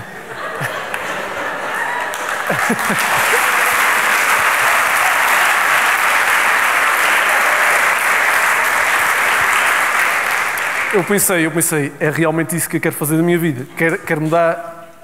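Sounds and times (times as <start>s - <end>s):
audience applauding: 0.0s - 11.5s.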